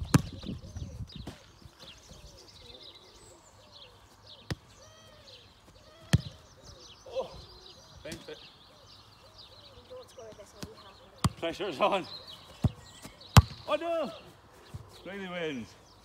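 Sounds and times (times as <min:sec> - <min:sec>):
football kicked thud: 0:00.0 - 0:00.6, 0:06.0 - 0:06.4, 0:12.6 - 0:13.6
birds chirping: 0:00.0 - 0:16.0.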